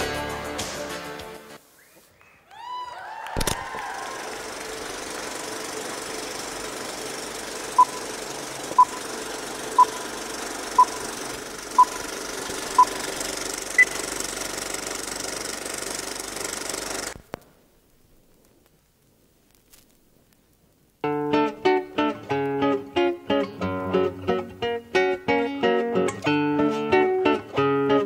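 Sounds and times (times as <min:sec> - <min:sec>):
film projector hiss and rattle: 0:03.4 - 0:17.5
short beeps: 0:09.8 - 0:10.0.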